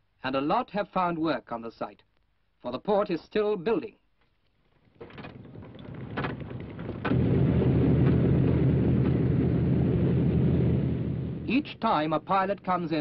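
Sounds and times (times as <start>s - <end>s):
knocks: 5.0s - 9.2s
heavy machinery engine droning: 5.0s - 11.8s.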